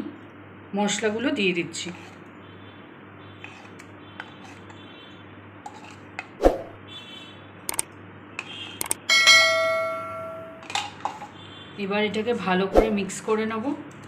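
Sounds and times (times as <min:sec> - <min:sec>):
sharp clicks: 0:07.7 - 0:07.9, 0:08.8 - 0:09.0
bell ding: 0:09.1 - 0:10.6.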